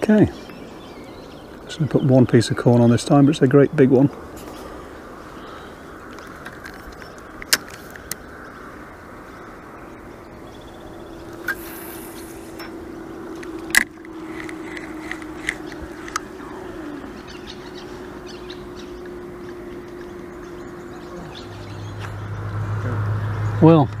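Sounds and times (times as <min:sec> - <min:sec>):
low steady hum: 0:00.0 - 0:23.6
fishing line hiss: 0:10.9 - 0:17.0.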